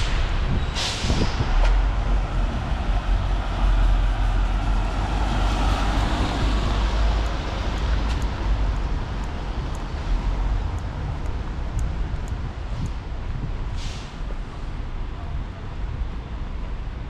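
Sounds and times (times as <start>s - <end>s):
low traffic rumble: 0.0s - 17.0s
car tyres hissing on wet road: 13.7s - 14.6s.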